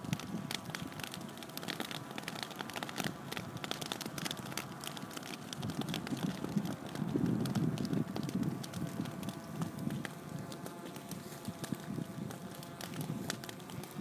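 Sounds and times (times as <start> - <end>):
dry grass crackling in fire: 0.0 - 14.0
faint steady hum: 0.0 - 14.0.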